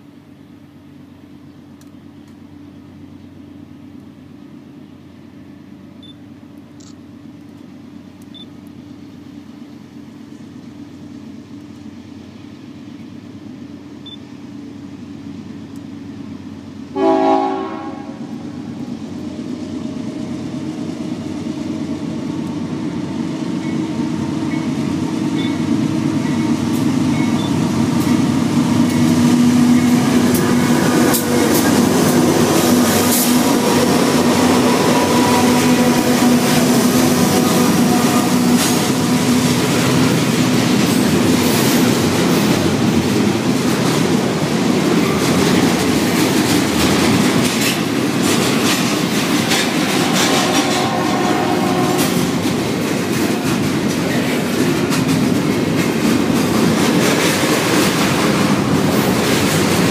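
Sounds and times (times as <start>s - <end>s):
diesel locomotive engine drone: 0.0s - 59.9s
train wheels clacking over rail joints: 24.5s - 59.9s.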